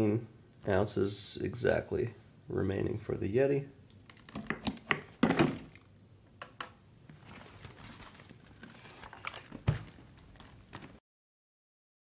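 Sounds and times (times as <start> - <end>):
soft rustling: 7.1 - 11.0.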